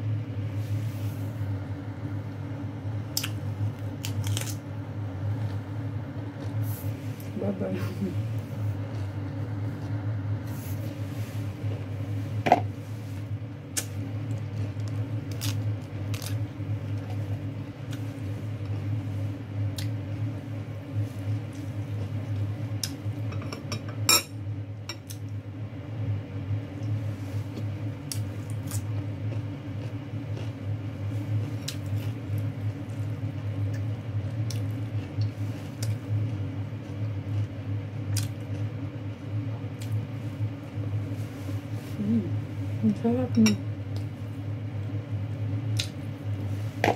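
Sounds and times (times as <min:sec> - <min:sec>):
steady low hum: 0:00.0 - 0:46.9
mouth chewing lettuce: 0:03.1 - 0:06.8, 0:13.7 - 0:19.0, 0:26.8 - 0:38.8.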